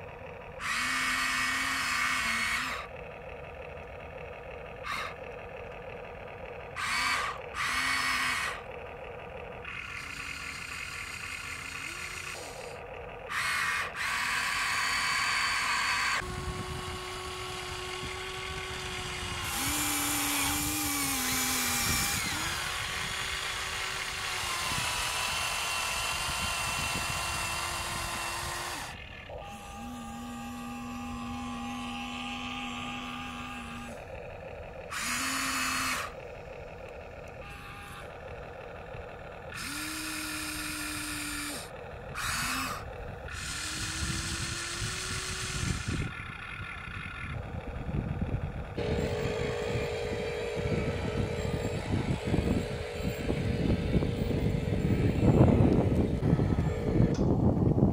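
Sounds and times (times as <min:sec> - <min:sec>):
small electric motors whining: 0:00.0 - 0:57.9.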